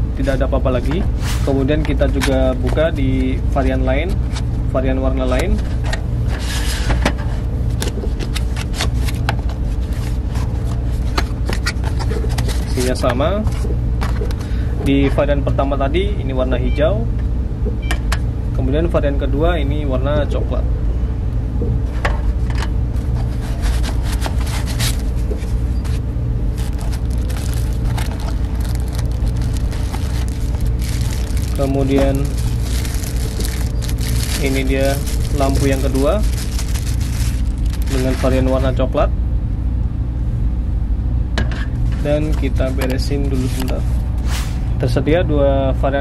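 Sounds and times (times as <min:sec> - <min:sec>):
steady low hum: 0:00.0 - 0:46.0
cardboard box handling: 0:23.1 - 0:38.4.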